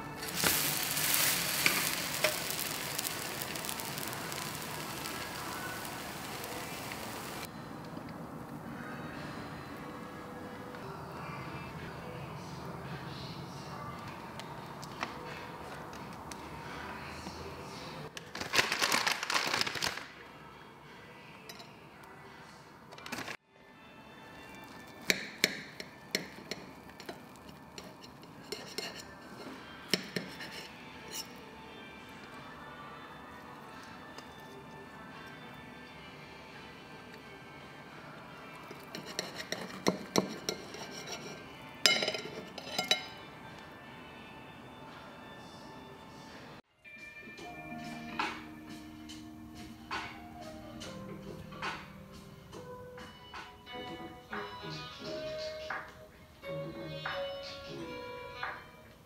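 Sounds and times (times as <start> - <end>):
toast sizzling in oil: 0.1 - 7.5, 24.6 - 29.1, 38.5 - 43.1
cutlery clinking on plate: 25.0 - 31.4, 38.7 - 43.3.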